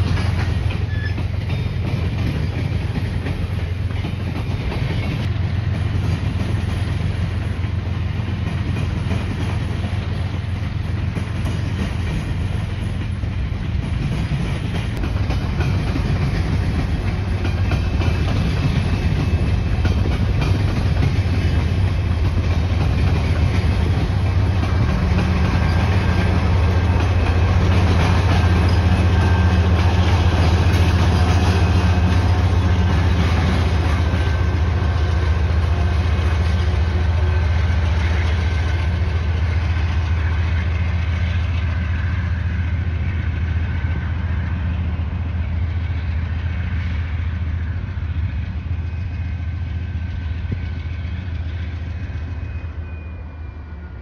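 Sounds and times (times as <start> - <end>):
train wheels clicking over rail joints: 0.0 - 53.1
diesel locomotive engine drone: 0.0 - 54.0
train cars rumbling: 0.0 - 54.0.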